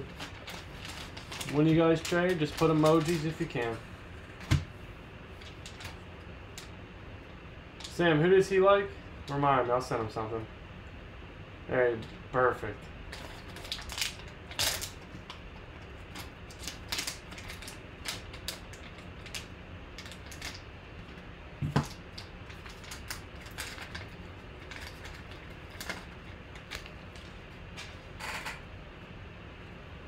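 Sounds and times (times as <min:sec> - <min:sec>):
foil pack tearing and crinkling: 0:00.0 - 0:03.8, 0:13.1 - 0:20.7, 0:21.6 - 0:27.3.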